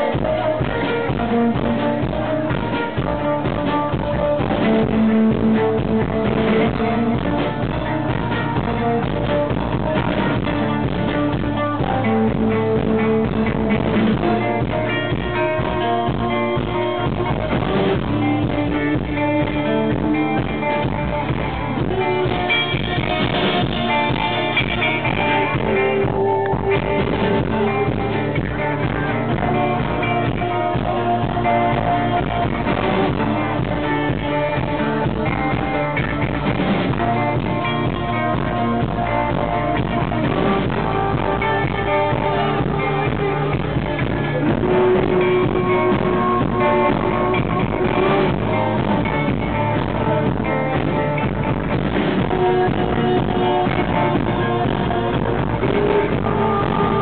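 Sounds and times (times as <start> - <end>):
guitar: 0.0 - 57.0
live band playing: 0.0 - 57.0.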